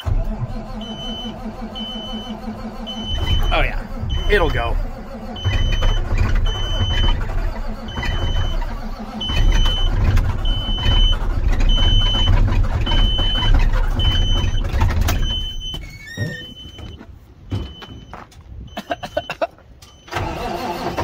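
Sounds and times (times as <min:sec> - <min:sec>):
diesel engine rumbling: 0:00.0 - 0:21.0
high warning beeps: 0:00.8 - 0:07.2.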